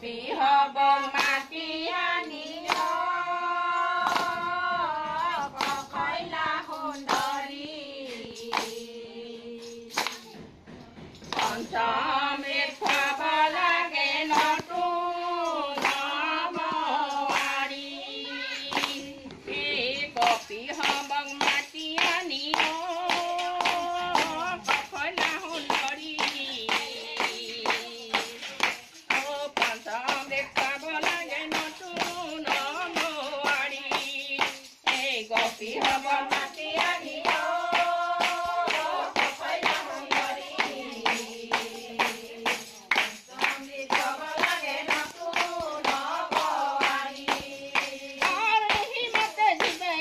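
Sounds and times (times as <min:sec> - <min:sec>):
women singing together: 0:00.0 - 0:10.5, 0:11.2 - 0:50.0
sharp rhythmic beat: 0:00.7 - 0:50.0
hand claps: 0:01.0 - 0:50.0.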